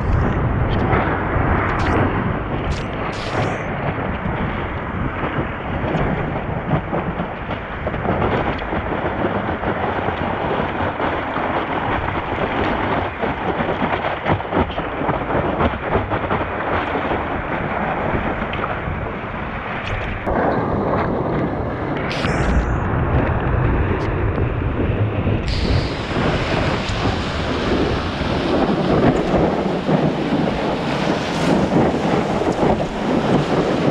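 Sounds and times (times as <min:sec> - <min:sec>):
wind buffeting microphone: 0:00.0 - 0:33.9
whitewater rushing: 0:25.5 - 0:33.9.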